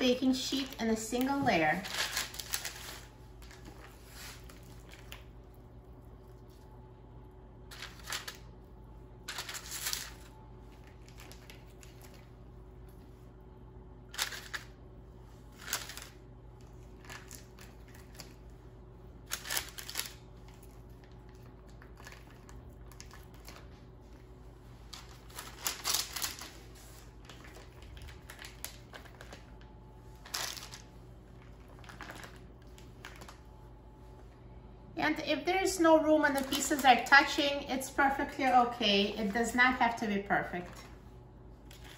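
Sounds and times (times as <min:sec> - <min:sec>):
plastic and paper rustling: 0:00.3 - 0:05.3, 0:07.7 - 0:08.5, 0:09.3 - 0:12.4, 0:14.1 - 0:18.5, 0:19.2 - 0:33.5, 0:36.2 - 0:37.4, 0:38.4 - 0:41.9.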